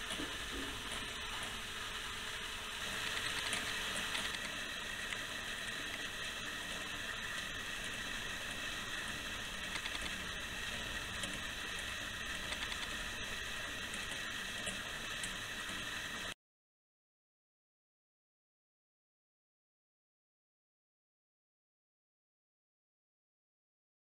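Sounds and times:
clockwork gear train whirring: 0.0s - 16.4s.

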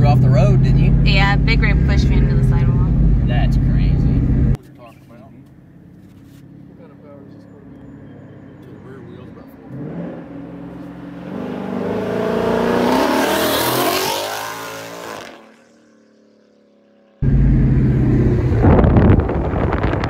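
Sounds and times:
car engine accelerating hard: 0.0s - 4.6s, 5.9s - 20.0s
low engine rumble inside car: 0.0s - 4.6s, 17.2s - 20.0s
road noise: 0.0s - 20.0s.

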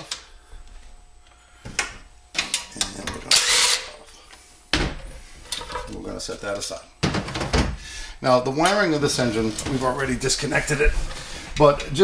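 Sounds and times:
cordless drill running: 3.4s - 3.8s.

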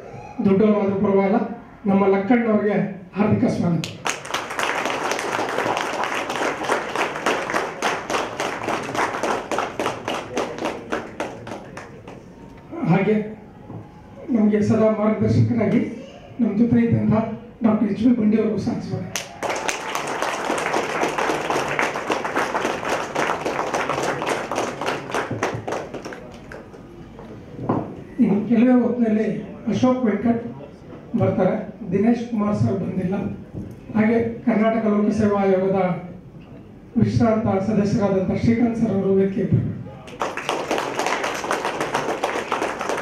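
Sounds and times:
audience applauding: 3.8s - 12.3s, 19.1s - 27.0s, 40.0s - 43.0s
nearby hands clapping: 3.8s - 12.3s, 19.2s - 26.9s, 40.1s - 43.0s.

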